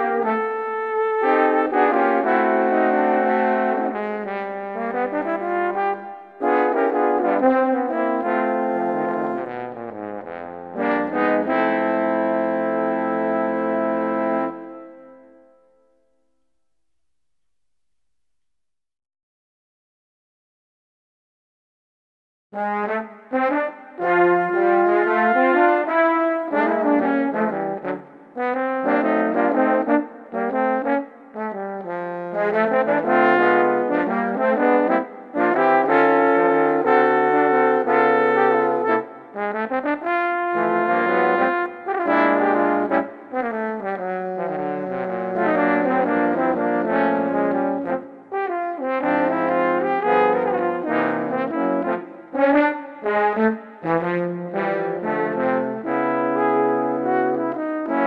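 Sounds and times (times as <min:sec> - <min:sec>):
wind instruments holding notes: 0:00.0 - 0:15.6, 0:22.6 - 0:58.0.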